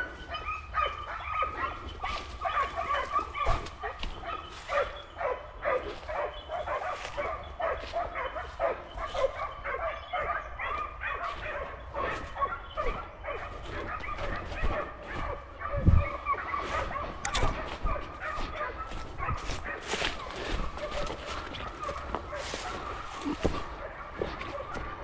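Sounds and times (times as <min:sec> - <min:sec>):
dogs barking and yipping: 0:00.0 - 0:25.0.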